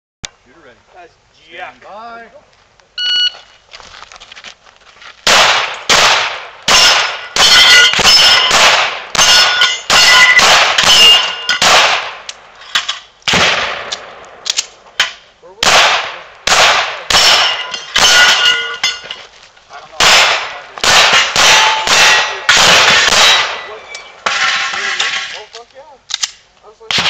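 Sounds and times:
pistol shots: 0:05.2 - 0:12.3, 0:13.3 - 0:19.0, 0:20.0 - 0:24.7, 0:26.1 - 0:27.0
steel targets ringing: 0:06.7 - 0:08.6, 0:09.2 - 0:11.8, 0:17.1 - 0:19.2, 0:21.1 - 0:25.4.

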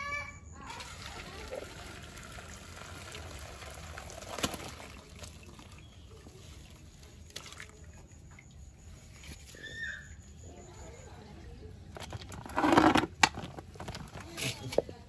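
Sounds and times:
water splashing onto concrete: 0:01.1 - 0:06.4.

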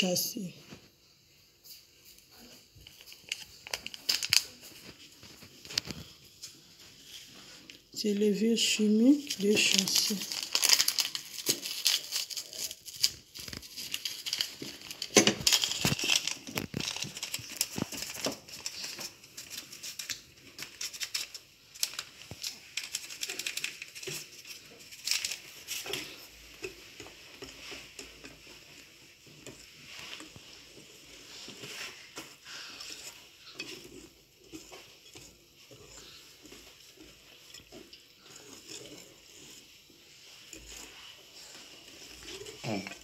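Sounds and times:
paper sachet crinkling: 0:02.8 - 0:06.1, 0:08.6 - 0:26.2.

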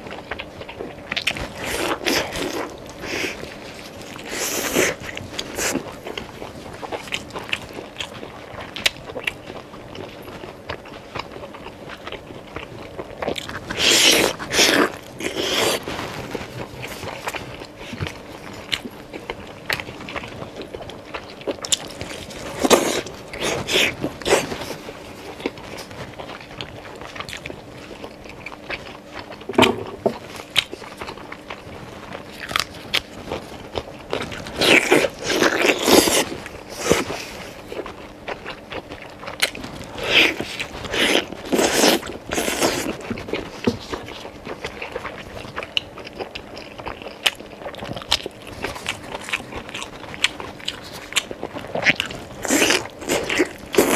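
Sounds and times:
person chewing meat: 0:00.0 - 0:53.9.

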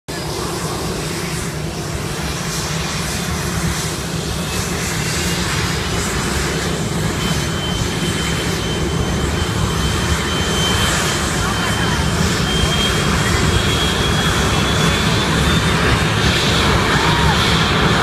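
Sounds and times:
jet engines rumbling: 0:00.1 - 0:18.0.

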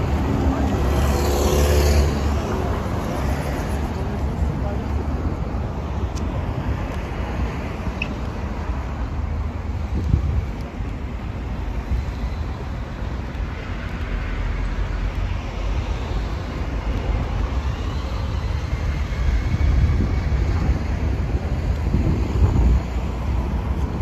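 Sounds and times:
city road traffic: 0:00.0 - 0:24.0
wind buffeting microphone: 0:09.0 - 0:12.2, 0:16.4 - 0:24.0.

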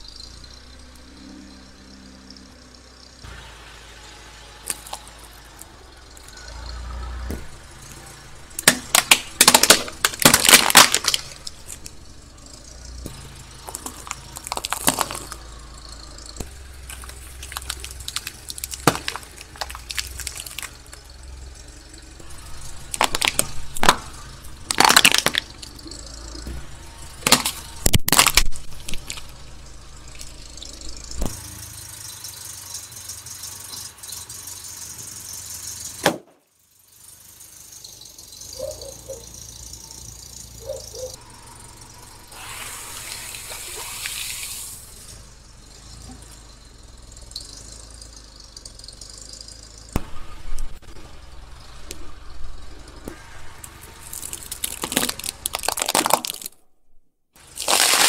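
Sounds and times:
car engine rumble: 0:00.0 - 0:58.0
tyre crushing objects: 0:08.6 - 0:11.9, 0:13.0 - 0:15.4, 0:16.4 - 0:20.8, 0:22.9 - 0:25.6, 0:26.4 - 0:29.4, 0:54.2 - 0:56.5, 0:57.5 - 0:58.0.

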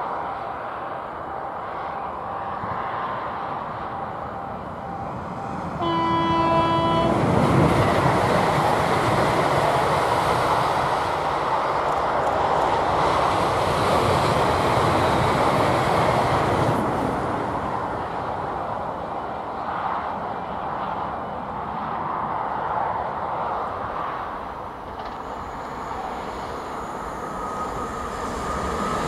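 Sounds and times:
train wheel and rail noise: 0:00.0 - 0:29.0
train horn blast: 0:05.8 - 0:07.4.

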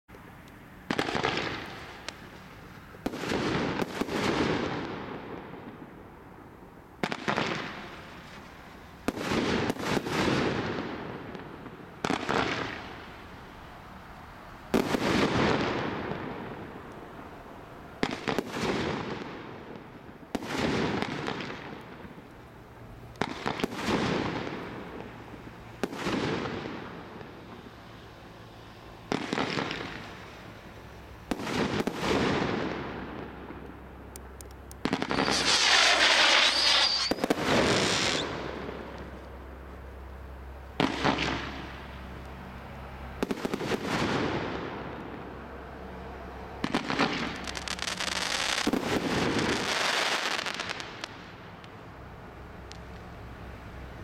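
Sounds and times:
firework shots firing: 0:00.9 - 0:05.9, 0:07.0 - 0:13.1, 0:14.7 - 0:16.8, 0:18.0 - 0:22.2, 0:23.2 - 0:25.1, 0:25.8 - 0:27.6, 0:29.1 - 0:30.3, 0:31.3 - 0:33.7, 0:34.8 - 0:39.2, 0:40.8 - 0:41.9, 0:43.2 - 0:45.2, 0:46.6 - 0:51.2.

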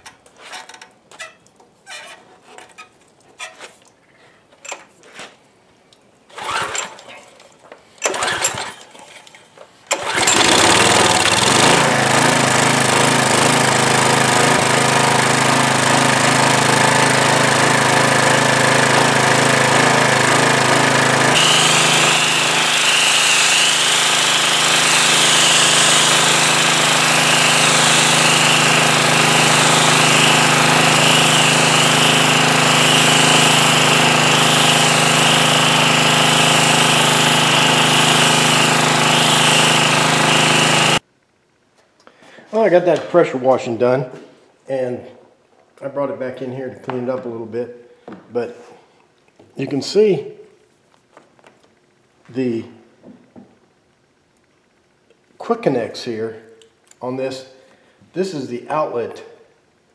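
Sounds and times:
pressure washer engine running: 0:08.0 - 0:08.7, 0:09.9 - 0:41.0
starter cord pull: 0:08.0 - 0:08.9, 0:09.9 - 0:11.9.

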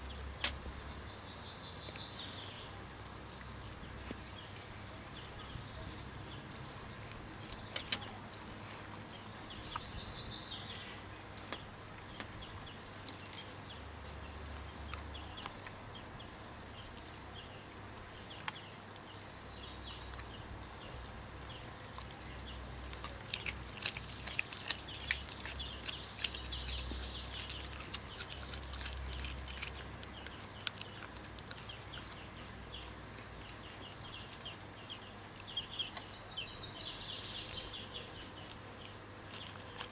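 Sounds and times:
wet clicks and crunches: 0:00.4 - 0:00.7, 0:03.3 - 0:10.2, 0:11.1 - 0:15.8, 0:16.8 - 0:34.8, 0:37.3 - 0:39.9
dog gnawing and licking bones: 0:10.9 - 0:15.8, 0:16.8 - 0:39.9.

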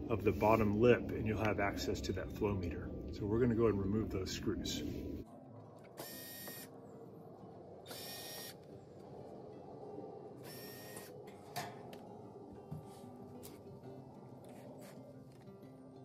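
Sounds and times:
cordless drill motor running: 0:06.0 - 0:06.7, 0:07.9 - 0:08.6, 0:10.4 - 0:11.1.

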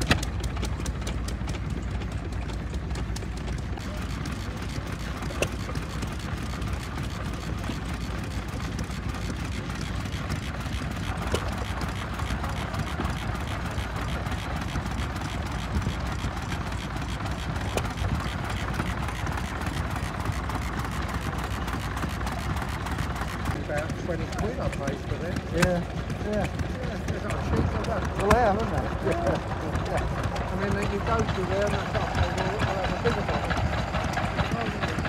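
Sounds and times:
stationary engines running: 0:00.0 - 0:35.0.

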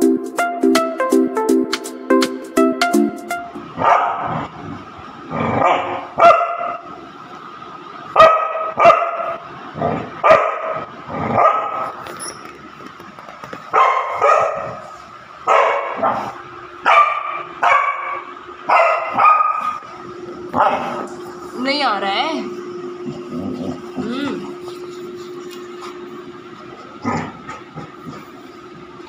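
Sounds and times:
puppy barking: 0:03.8 - 0:04.4, 0:05.6 - 0:06.8, 0:08.2 - 0:09.4, 0:10.2 - 0:12.0, 0:13.7 - 0:14.9, 0:15.5 - 0:19.9, 0:20.6 - 0:21.1.

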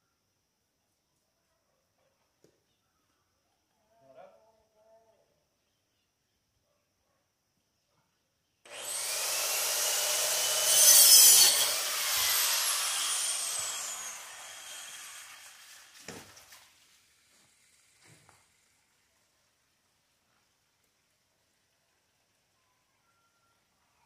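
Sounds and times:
angle grinder cutting pipe: 0:08.7 - 0:16.2.

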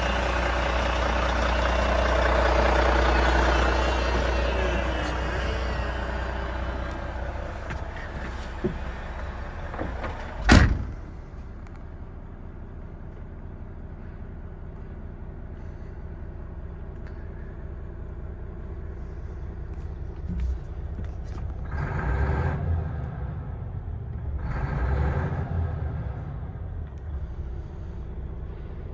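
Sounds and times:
truck diesel engine idling: 0:00.0 - 0:24.1, 0:25.6 - 0:28.9
cab door shutting: 0:09.7 - 0:11.1.

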